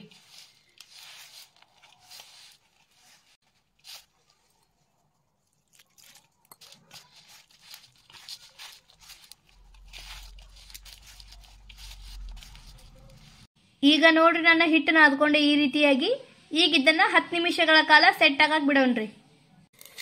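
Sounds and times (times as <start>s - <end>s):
dough crunching and rustling: 0.0s - 13.6s.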